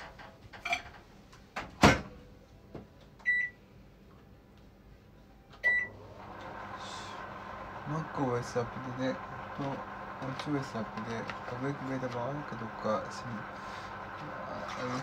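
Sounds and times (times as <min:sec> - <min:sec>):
keypad beeps: 0:03.2 - 0:03.6
microwave oven humming: 0:05.2 - 0:15.0.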